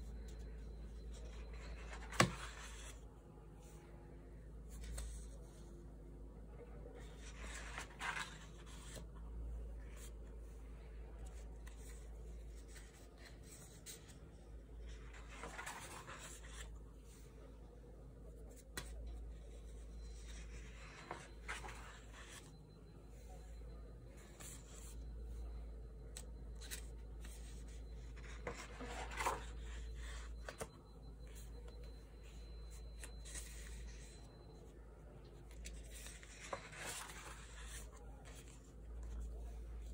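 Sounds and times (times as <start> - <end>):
paper rustling and sliding: 0.2 - 3.0, 6.9 - 9.1, 9.8 - 14.2, 14.8 - 17.2, 18.5 - 22.5, 26.6 - 30.7, 31.3 - 34.7, 35.4 - 39.9.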